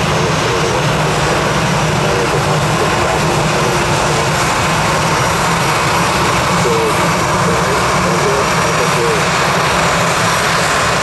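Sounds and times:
jet airliner engines running: 0:00.0 - 0:11.0.

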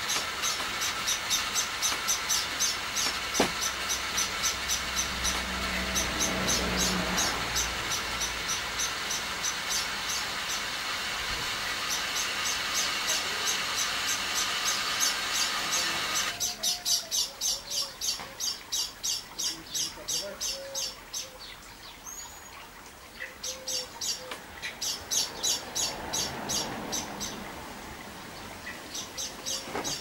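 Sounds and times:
bird chirping: 0:00.0 - 0:10.7, 0:11.8 - 0:27.4, 0:28.3 - 0:30.0.

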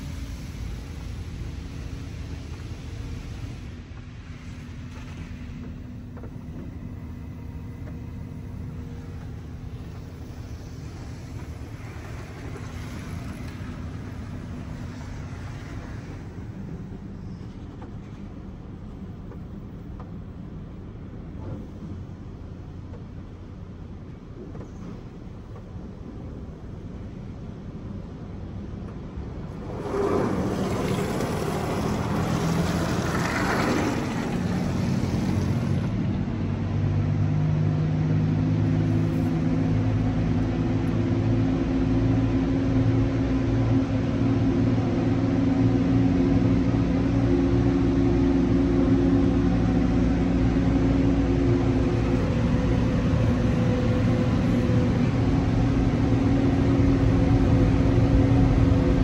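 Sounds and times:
shifting whine: 0:00.0 - 0:28.0, 0:28.6 - 0:36.8, 0:37.8 - 0:59.0
air dryer blowers running: 0:29.5 - 0:35.9.

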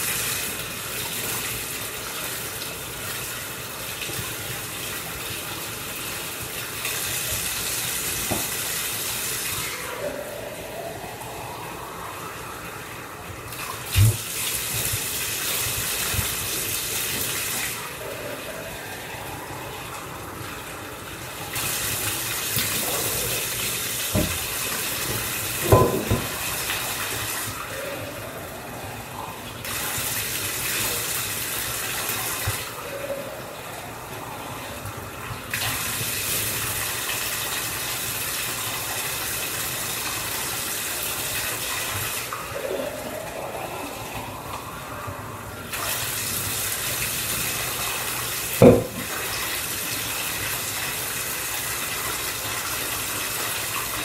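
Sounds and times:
faucet water running: 0:00.0 - 0:54.0.

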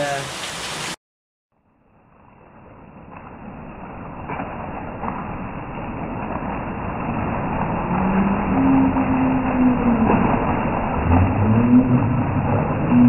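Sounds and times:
heavy rain on pavement: 0:00.0 - 0:01.0, 0:01.6 - 0:13.0
vehicle engine hum: 0:07.7 - 0:13.0.

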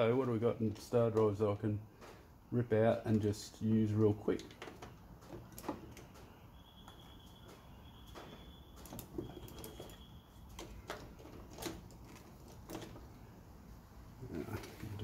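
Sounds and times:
faint high steady tone: 0:06.0 - 0:10.8.

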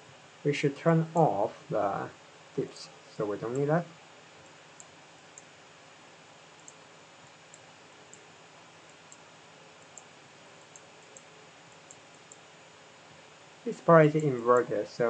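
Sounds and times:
steady low hiss: 0:00.0 - 0:15.0
computer mouse clicks: 0:06.6 - 0:06.8, 0:09.8 - 0:12.4.

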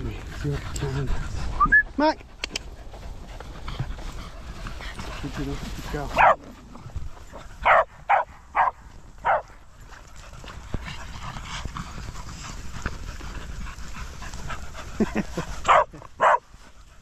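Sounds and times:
dog barking: 0:06.2 - 0:06.4, 0:07.6 - 0:09.5, 0:15.7 - 0:16.4.

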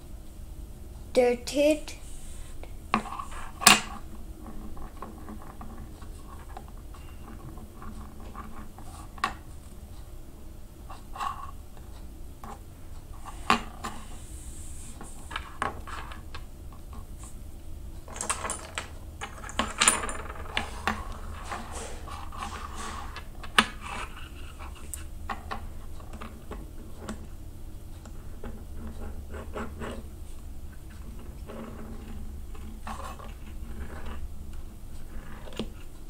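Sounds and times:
low background hum: 0:00.0 - 0:36.0
objects clicking and clattering: 0:18.0 - 0:27.2.

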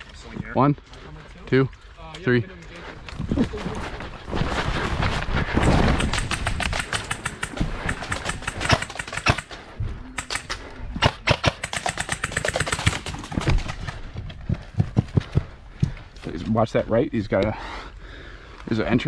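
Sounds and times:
footsteps running: 0:03.1 - 0:08.5, 0:13.0 - 0:16.1
rapid clicks: 0:05.8 - 0:09.6, 0:11.4 - 0:14.0.

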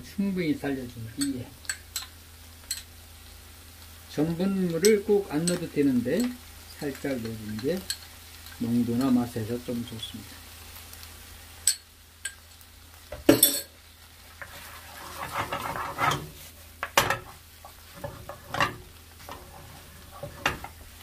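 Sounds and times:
food sizzling in pan: 0:00.0 - 0:21.0
spoon scraping pan: 0:14.3 - 0:20.9
wooden spoon knocking on pan: 0:16.8 - 0:18.8.

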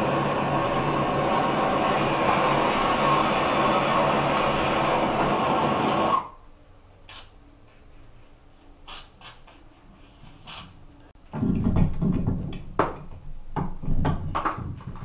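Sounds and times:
aerosol can spraying: 0:07.1 - 0:07.3.

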